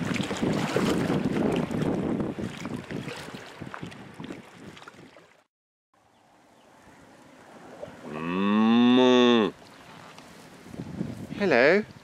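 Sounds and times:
cow mooing: 8.0 - 9.6.

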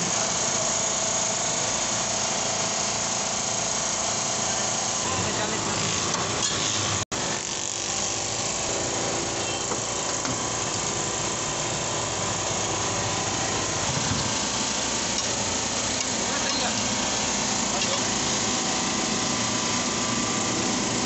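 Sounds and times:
mechanical drone with hiss: 0.0 - 21.0.

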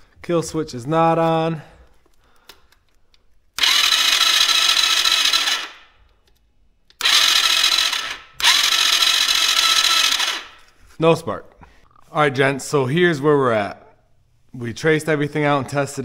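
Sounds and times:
electric starter cranking engine: 3.6 - 5.9, 7.0 - 10.6.

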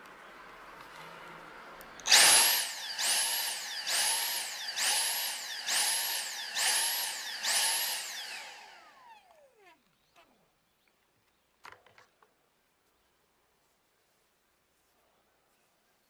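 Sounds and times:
handheld vacuum motor pulsing: 2.0 - 9.7.

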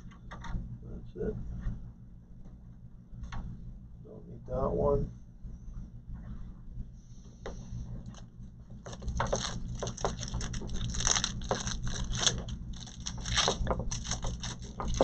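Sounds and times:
steady low hum: 0.0 - 15.0
cables and plastic rustling: 7.9 - 15.0.

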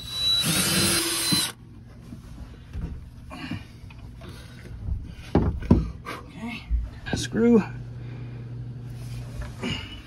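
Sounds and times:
power drill motor whining: 0.0 - 1.6.

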